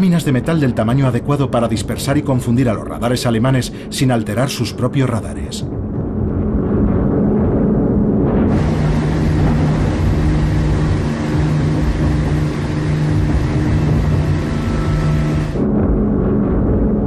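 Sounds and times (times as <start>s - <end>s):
propeller plane engines droning: 8.5s - 15.6s.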